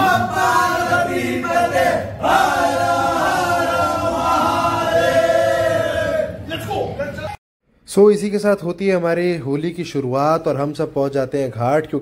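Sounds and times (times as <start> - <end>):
group of voices chanting: 0.0 - 6.4.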